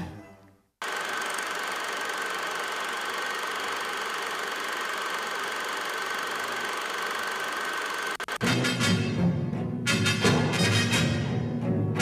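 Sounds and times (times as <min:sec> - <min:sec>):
film projector whirring: 0:00.8 - 0:08.5.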